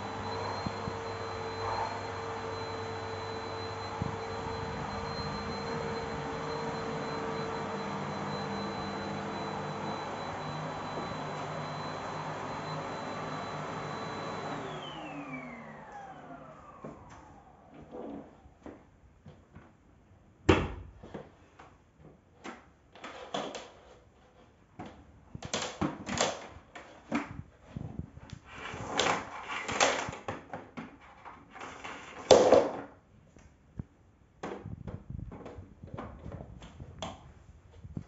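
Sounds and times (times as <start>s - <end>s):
vacuum cleaner parts clattering: 0.0s - 17.1s.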